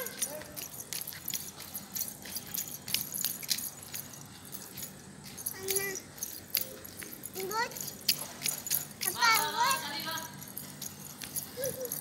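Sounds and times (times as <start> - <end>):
jingling clicks of footsteps: 0.0 - 12.0
child vocal sound: 11.5 - 12.0.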